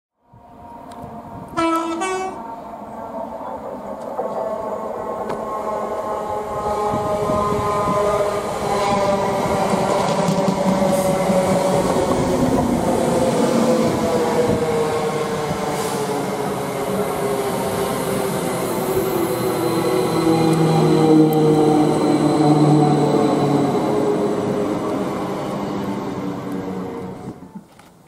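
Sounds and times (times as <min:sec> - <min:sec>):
train passing at speed: 0:00.2 - 0:27.7
wheel and track rumble: 0:06.3 - 0:15.6.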